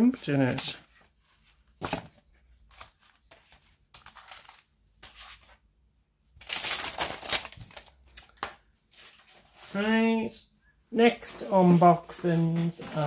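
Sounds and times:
paper rustling: 0.3 - 5.6, 6.4 - 10.0.

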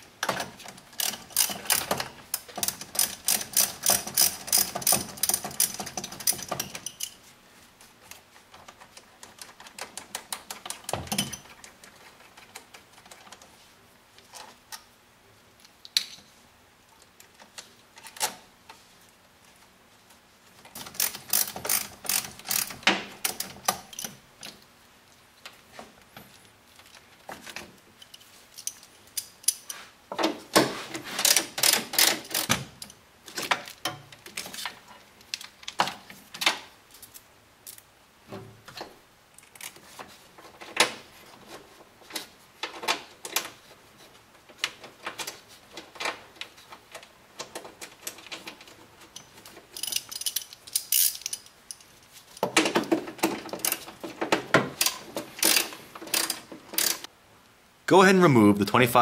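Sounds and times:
tools being handled: 0.2 - 7.3, 25.8 - 36.2, 39.4 - 57.1
ratchet wrench clicking: 1.0 - 1.8, 2.6 - 7.0, 20.9 - 22.7, 49.8 - 51.5, 54.8 - 57.1.

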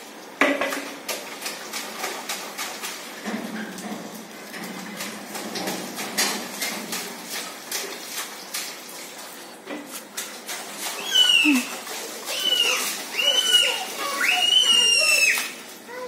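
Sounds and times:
water splashes: 0.0 - 16.0
child squealing: 11.0 - 16.0.

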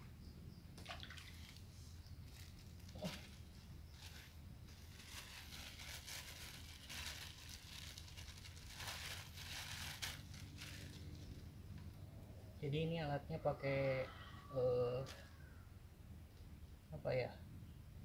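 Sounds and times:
low steady hum: 0.0 - 18.0
bag rustling and crinkling: 1.3 - 11.5.

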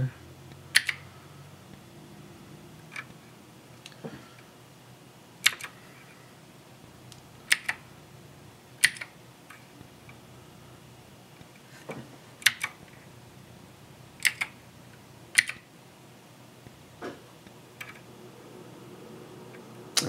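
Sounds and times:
keyboard keys clicking: 0.7 - 1.0, 5.4 - 5.7, 7.5 - 7.8, 8.8 - 9.6, 12.4 - 12.8, 14.2 - 14.6, 15.3 - 15.6.

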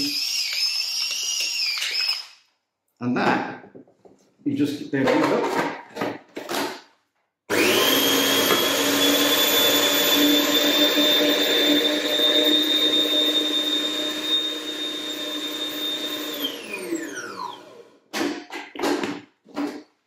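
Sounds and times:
food processor motor whining: 0.0 - 2.3, 7.5 - 18.0.

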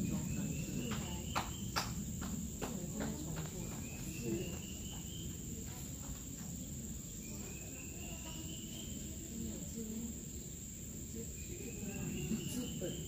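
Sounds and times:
high-pitched insect trill: 0.0 - 13.0.

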